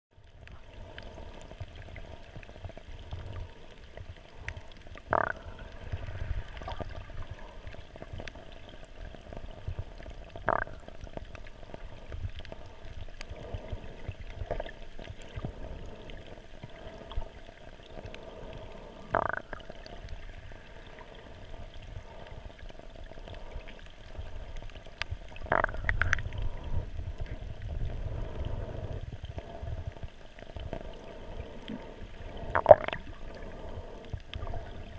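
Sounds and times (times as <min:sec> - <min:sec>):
underwater water sloshing: 0:00.2 - 0:34.9.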